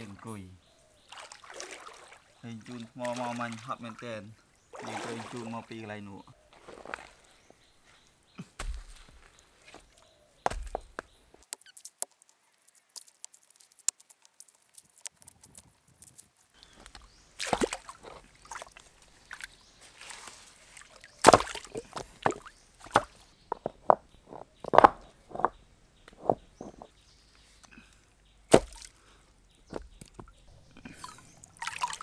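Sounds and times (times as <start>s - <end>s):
water sloshing: 1.0s - 7.5s, 16.6s - 23.3s, 29.8s - 32.0s
wood knocking and clattering: 21.3s - 26.9s.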